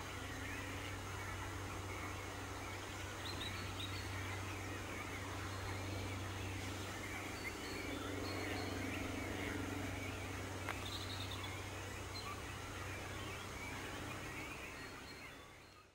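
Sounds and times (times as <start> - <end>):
songbirds singing: 0.0 - 15.9
steady low hum: 0.0 - 15.9.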